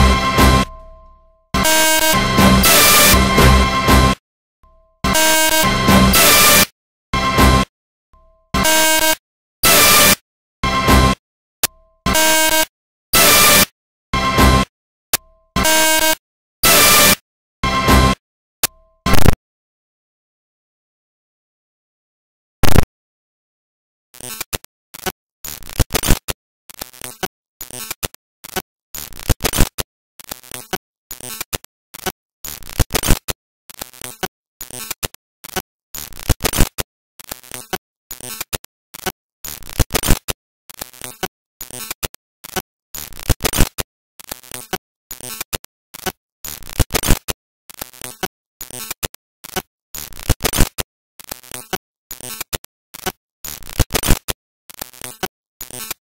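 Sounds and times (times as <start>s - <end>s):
harsh static-like noise bursts: 22.6s - 22.8s.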